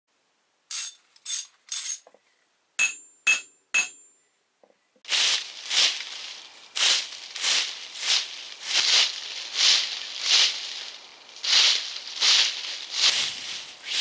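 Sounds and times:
short sharp ringing sounds: 2.8 - 4.2
leaf rake scraping dry leaves: 5.1 - 14.0.

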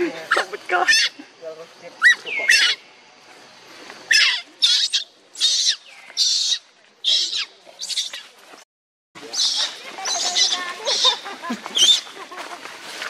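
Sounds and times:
baby monkey screaming: 0.3 - 1.2, 2.0 - 2.8, 4.1 - 8.2, 9.3 - 12.1.

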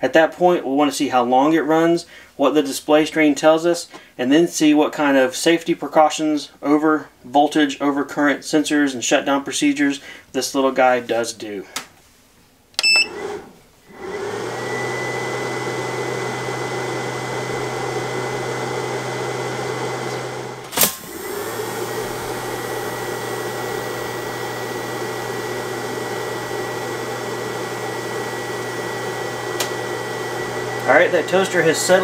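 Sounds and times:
inverter cooling fan running: 14.0 - 32.0.

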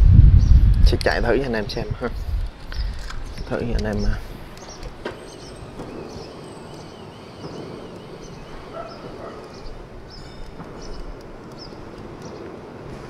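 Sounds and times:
high animal-like calls: 5.0 - 9.9.

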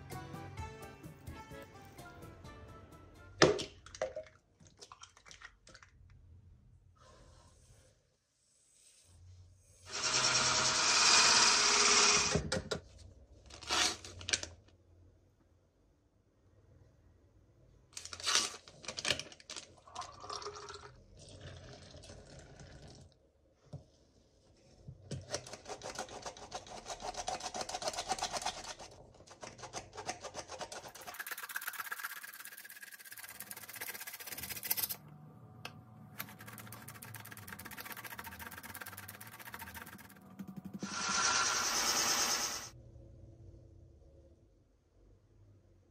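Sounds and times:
flour sifter ticking and rasping: 30.1 - 35.0, 36.2 - 41.3.

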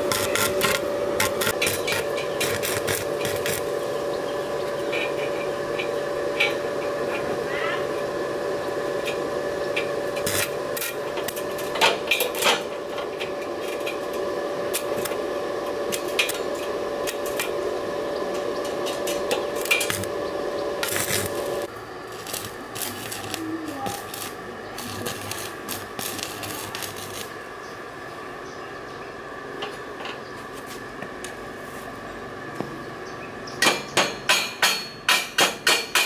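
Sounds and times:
sharp welding pops: 0.0 - 3.7, 10.2 - 12.7, 18.6 - 20.2, 20.8 - 27.3
welding arc crackling: 0.0 - 7.2, 8.4 - 27.6.

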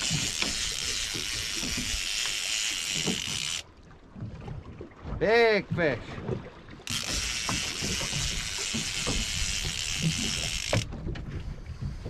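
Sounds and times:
fishing reel buzzing: 0.0 - 3.7, 6.8 - 11.0.

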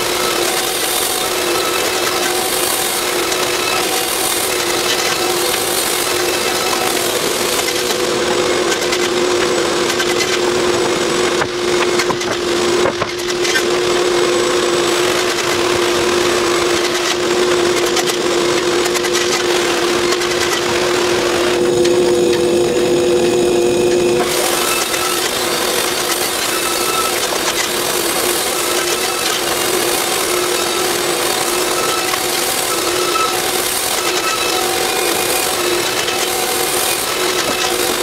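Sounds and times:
sawmill machinery humming: 0.0 - 38.0
wooden boards knocking and clattering: 10.8 - 13.6.

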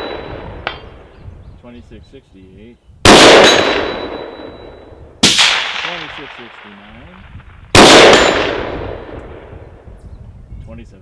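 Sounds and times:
rifle shots: 3.0 - 4.6, 5.2 - 9.6.

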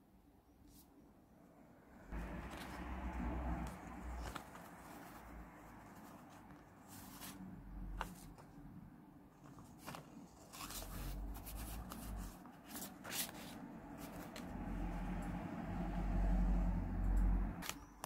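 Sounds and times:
paper rustling and crinkling: 2.2 - 8.6, 9.3 - 14.5.

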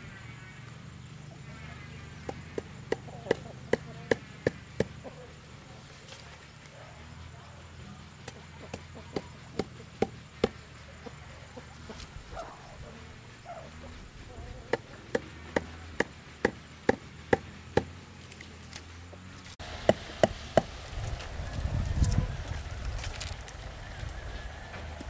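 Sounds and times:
hammer knocking stakes into ground: 14.7 - 18.0.

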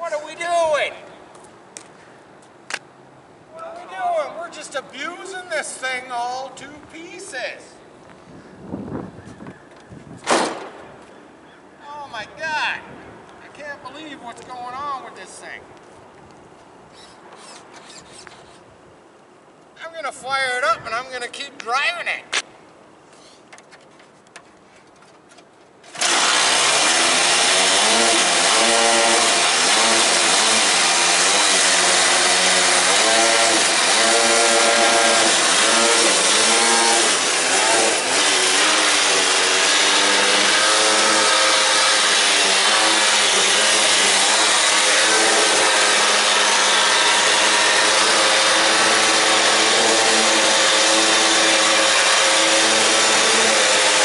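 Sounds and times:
small two-stroke engine revving: 25.9 - 54.0.

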